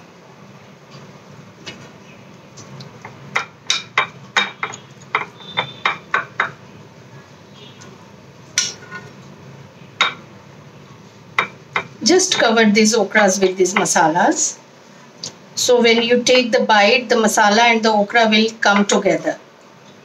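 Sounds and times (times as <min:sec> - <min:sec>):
metal spoon clinking on glass dish: 0:03.4 - 0:06.6.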